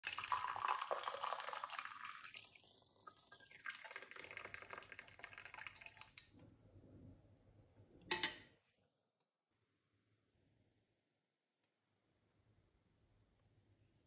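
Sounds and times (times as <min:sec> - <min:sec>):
tea pouring through strainer into glass: 0:00.0 - 0:06.2.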